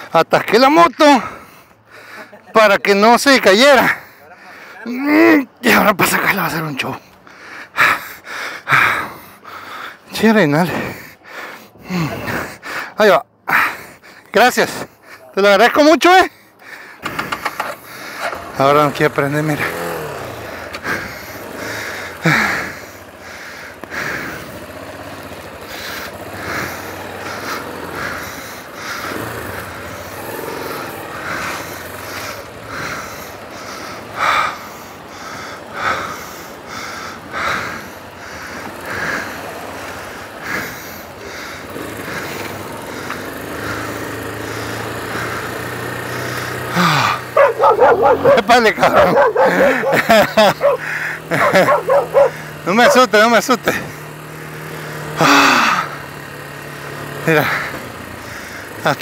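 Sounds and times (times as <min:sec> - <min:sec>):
motorcycle engine running: 0:16.3 - 0:59.0.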